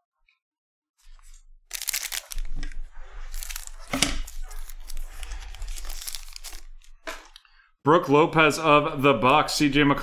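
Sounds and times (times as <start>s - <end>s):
foil wrapper crinkling and tearing: 1.1s - 7.3s.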